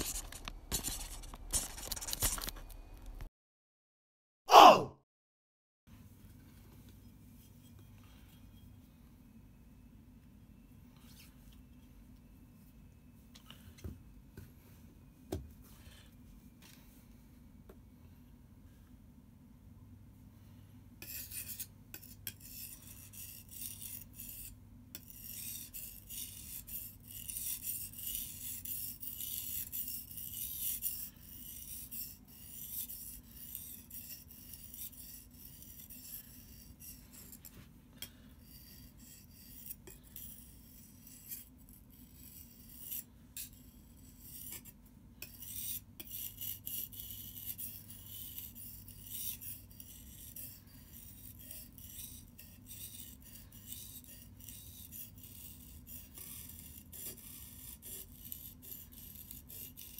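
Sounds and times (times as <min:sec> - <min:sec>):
knife scraping on whetstone: 0:21.0 - 0:59.9.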